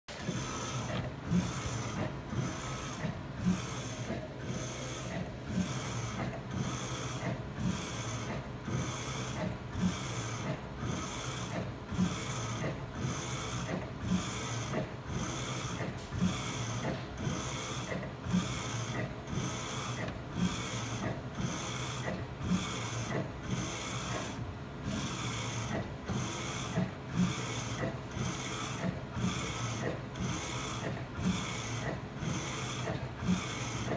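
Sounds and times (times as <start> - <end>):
steady printer hum: 0.1 - 33.9.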